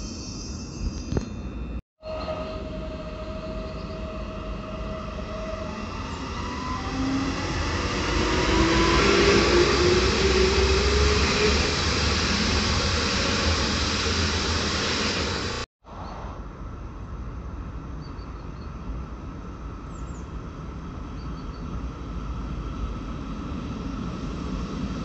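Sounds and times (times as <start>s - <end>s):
electric traction drive whine: 0.8s - 15.7s
train wheels rumbling on rail: 1.0s - 15.7s.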